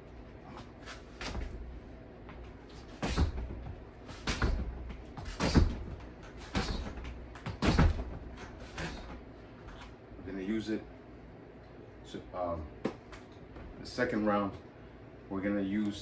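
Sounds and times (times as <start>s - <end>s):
footsteps thudding on wooden floor: 1.2s - 1.7s, 2.3s - 9.2s.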